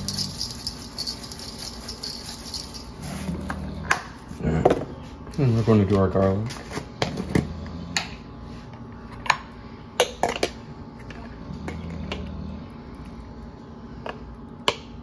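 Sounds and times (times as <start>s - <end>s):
metal spoon clinking: 0.0s - 2.9s
low steady hum: 0.0s - 15.0s.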